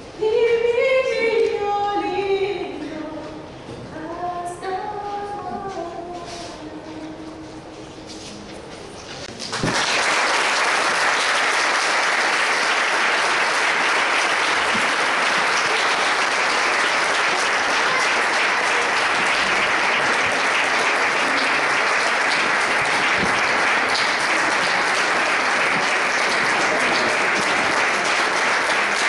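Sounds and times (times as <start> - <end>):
audience applauding: 9.4 - 29.0.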